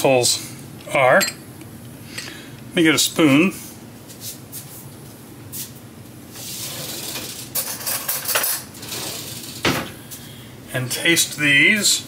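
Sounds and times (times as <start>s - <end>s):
metal cutlery clattering: 7.0s - 9.3s.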